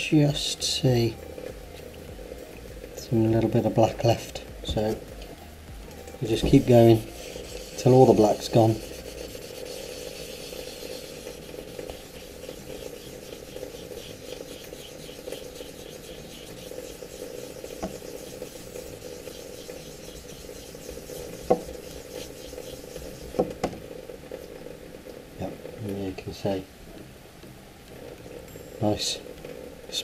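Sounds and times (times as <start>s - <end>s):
wet sanding rub: 6.2s - 23.6s.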